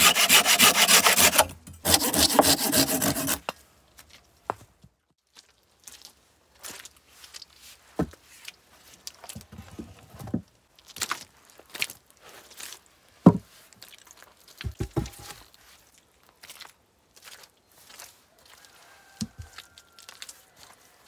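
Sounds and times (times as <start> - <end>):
footsteps on wet ground: 3.9 - 9.4, 10.7 - 21.0
logs knocking: 14.6 - 15.4.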